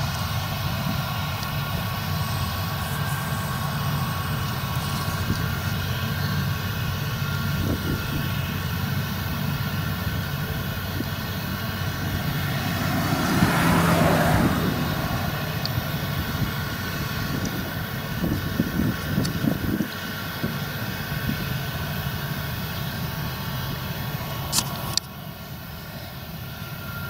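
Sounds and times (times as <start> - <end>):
combine harvester running: 0.0 - 27.0
loud rushing noise: 10.1 - 19.0.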